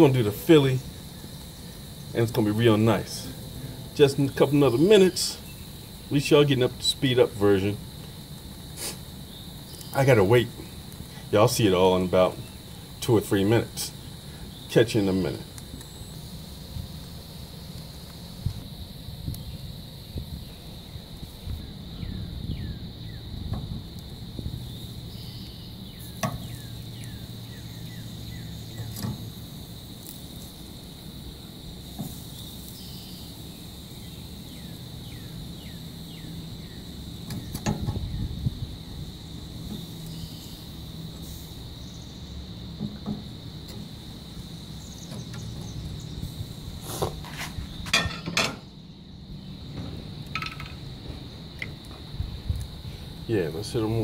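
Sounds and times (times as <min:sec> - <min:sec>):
high insect drone: 0:00.0 - 0:54.0
metal tongs scraping grill grate: 0:28.8 - 0:29.3, 0:46.8 - 0:48.7.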